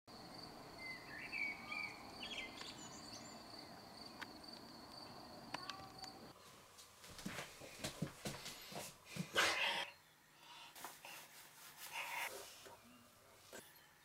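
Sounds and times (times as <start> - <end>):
bird chirping: 0.2 - 6.3.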